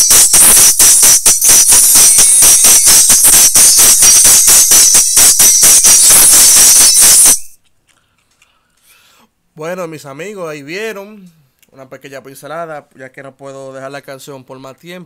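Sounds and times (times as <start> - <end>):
treble-heavy music through tweeter: 0.0 - 7.6.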